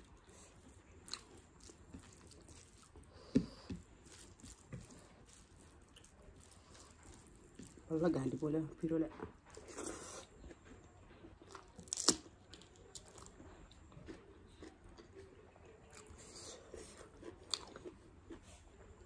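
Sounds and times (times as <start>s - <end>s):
person chewing and biting: 0.0s - 7.9s, 9.4s - 18.7s
crisp crunches: 0.0s - 8.5s, 11.4s - 13.4s.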